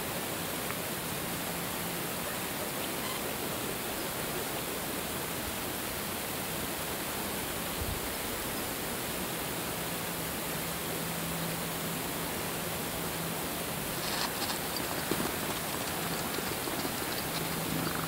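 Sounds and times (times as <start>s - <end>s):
steady hiss: 13.0s - 18.0s
faint low hum: 13.8s - 18.0s.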